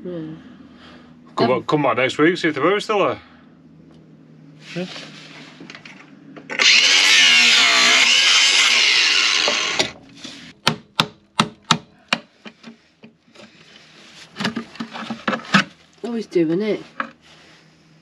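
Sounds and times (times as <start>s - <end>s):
angle grinder cutting steel: 6.5s - 10.0s.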